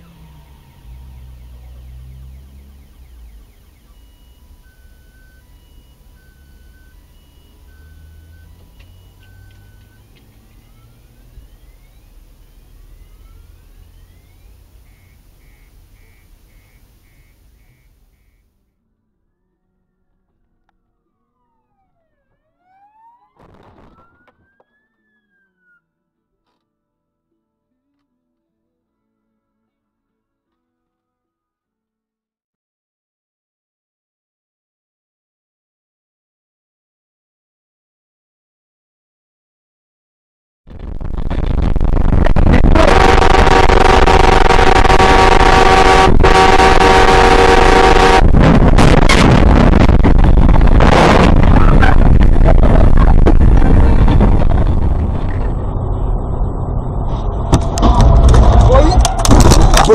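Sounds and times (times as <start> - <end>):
loud driving rumble: 0.0 - 26.0, 40.7 - 59.9
emergency vehicle siren wailing: 0.0 - 26.6, 40.8 - 59.9
vehicle horn blaring: 14.8 - 22.1, 42.7 - 48.5
loud burst of noise: 23.4 - 24.4, 40.7 - 59.9.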